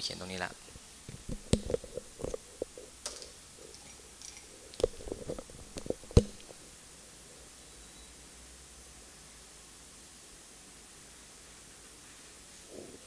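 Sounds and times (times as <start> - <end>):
pen clicks and taps on paper: 5.7 - 6.5.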